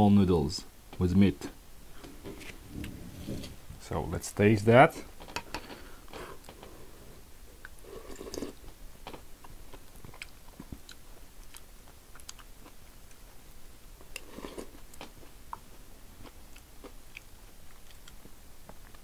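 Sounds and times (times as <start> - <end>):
person chewing: 7.6 - 8.7, 9.4 - 13.4, 14.1 - 19.0
slurping: 7.8 - 8.6.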